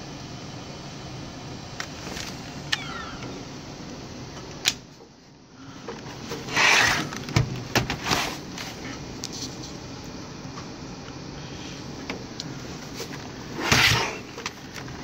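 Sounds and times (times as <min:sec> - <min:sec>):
laptop scraping on desk: 0:06.3 - 0:07.3, 0:13.0 - 0:14.4.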